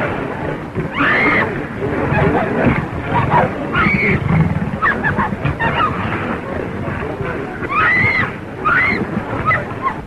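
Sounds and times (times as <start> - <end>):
big cat snarling and roaring: 2.2 - 6.2.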